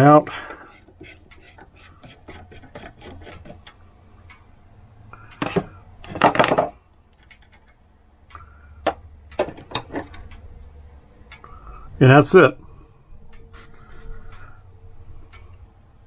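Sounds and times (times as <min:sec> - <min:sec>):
metal clock parts clattering: 0:05.3 - 0:07.8, 0:08.9 - 0:10.4.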